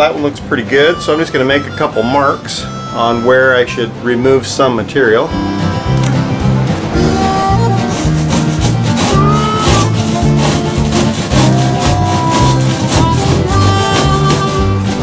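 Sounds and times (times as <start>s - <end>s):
background music with bass and beat: 0.0s - 15.0s
hand tool scraping fiberglass: 0.6s - 3.9s, 7.0s - 15.0s.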